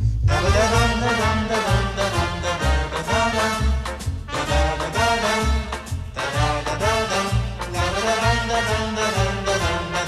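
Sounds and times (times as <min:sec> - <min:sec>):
upbeat swing music with brass: 0:00.0 - 0:10.0.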